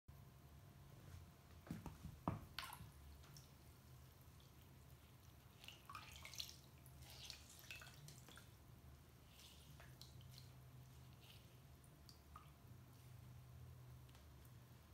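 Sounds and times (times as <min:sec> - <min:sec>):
soft knocks: 0:01.6 - 0:02.6
water splashing and dripping: 0:02.3 - 0:12.9.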